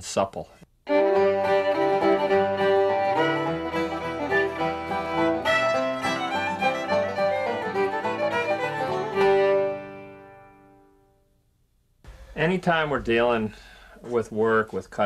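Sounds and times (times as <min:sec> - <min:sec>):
string instrumental music: 0:00.9 - 0:11.2.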